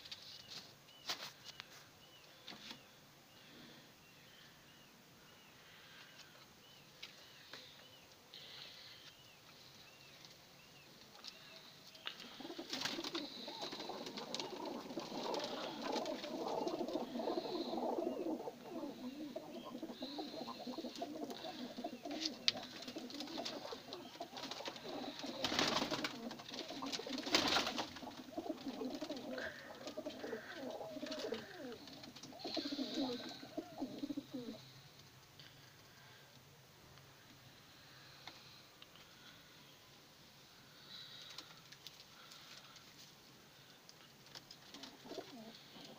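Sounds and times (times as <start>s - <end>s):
pigeons cooing: 12.0s - 34.9s, 44.4s - 45.9s.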